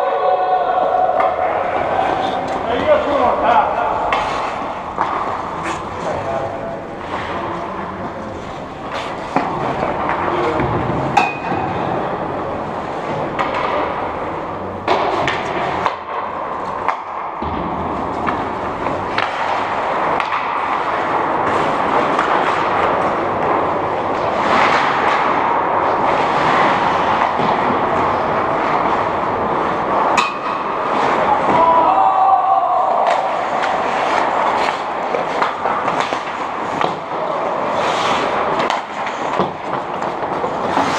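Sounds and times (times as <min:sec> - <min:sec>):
hockey sticks and puck clacking: 0:00.9 - 0:40.9
skates hissing on ice: 0:37.7 - 0:38.6.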